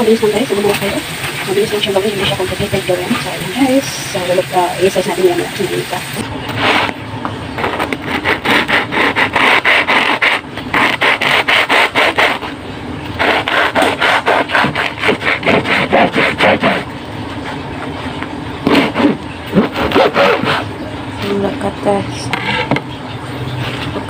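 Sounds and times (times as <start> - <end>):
knife sawing through bread crust: 6.6 - 7.0, 7.6 - 12.5, 13.2 - 16.9, 18.6 - 20.7.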